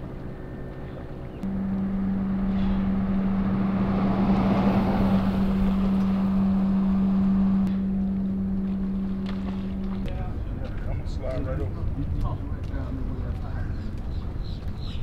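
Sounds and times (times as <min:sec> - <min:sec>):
low engine-like hum: 0:00.0 - 0:15.0
rushing noise: 0:01.5 - 0:07.7.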